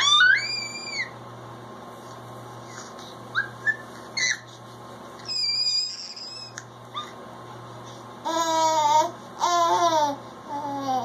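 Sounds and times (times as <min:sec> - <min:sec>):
baby squealing and cooing: 0:00.0 - 0:01.2, 0:04.2 - 0:04.5, 0:05.2 - 0:07.1.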